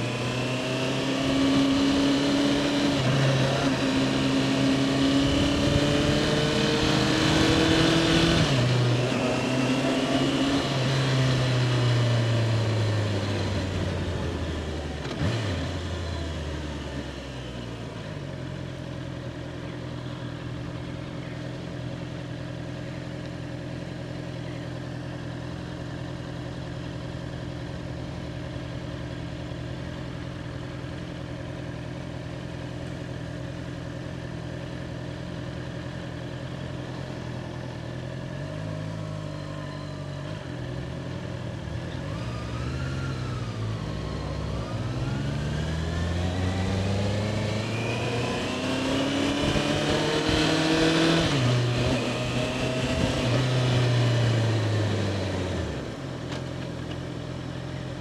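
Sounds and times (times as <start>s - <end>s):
motorcycle engine revving: 0.0s - 18.2s, 20.0s - 58.0s.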